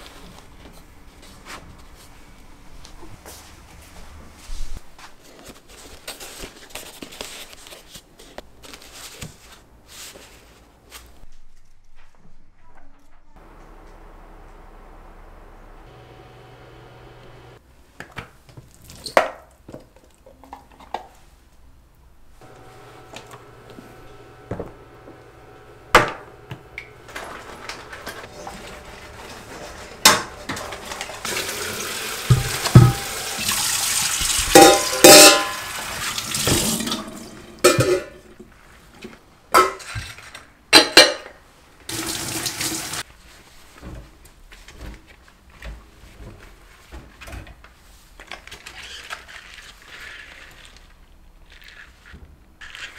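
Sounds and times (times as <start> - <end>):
tap running with water splashing: 22.4 - 37.4, 41.9 - 43.0
items knocking on a counter: 32.3 - 33.1.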